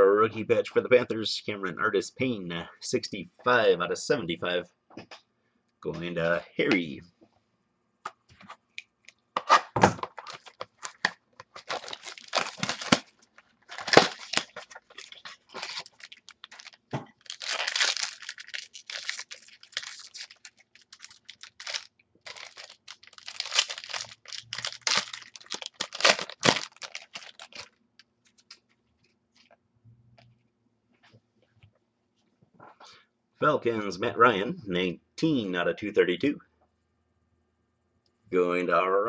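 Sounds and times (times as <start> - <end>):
wrapping tearing and crinkling: 10.0 - 28.8.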